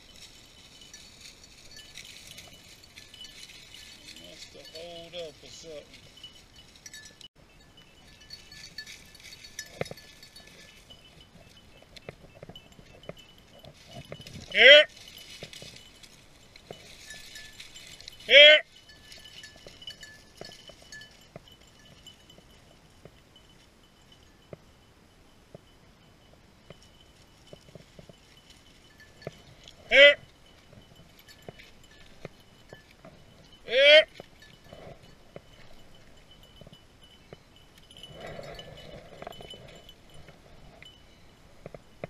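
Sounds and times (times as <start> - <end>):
footsteps through dry brush: 0.0 - 7.2, 8.0 - 23.1
light metallic jingling: 0.0 - 42.0.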